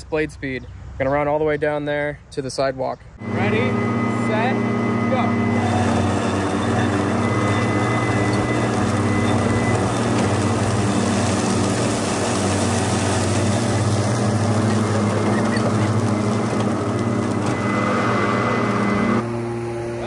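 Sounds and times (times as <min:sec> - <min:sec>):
spinning blades cutting grass: 0:03.2 - 0:19.2
electric mower motors humming: 0:03.2 - 0:20.0.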